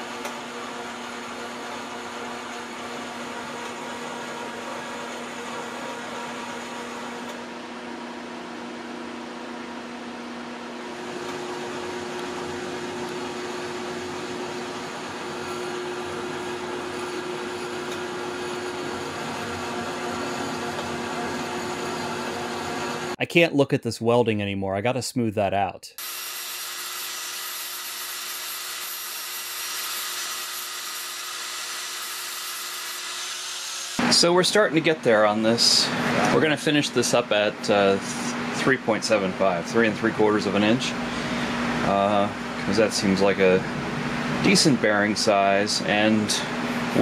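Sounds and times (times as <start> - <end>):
motor hum: 0.0 - 23.2.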